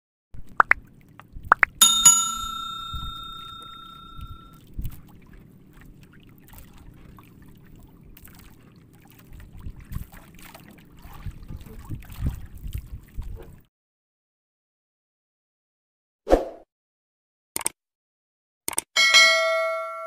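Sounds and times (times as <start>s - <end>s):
faint sea and boat noise: 0.4s - 13.7s
bell ding: 1.8s - 4.5s, 19.0s - 20.0s
quick clicks: 17.6s - 17.8s, 18.7s - 18.9s.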